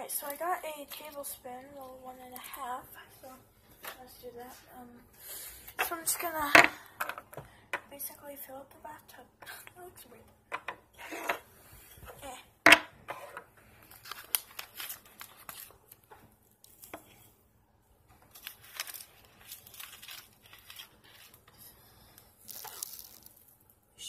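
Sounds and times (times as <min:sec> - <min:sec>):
rustling and crinkling: 0:00.0 - 0:04.7, 0:11.0 - 0:17.4, 0:18.0 - 0:23.8.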